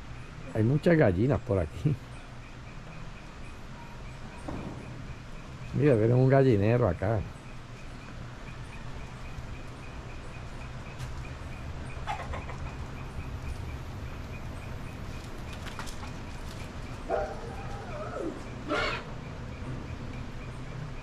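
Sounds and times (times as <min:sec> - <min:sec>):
chickens calling: 0:08.0 - 0:21.0
chicken squawk: 0:12.0 - 0:12.8, 0:17.1 - 0:19.1.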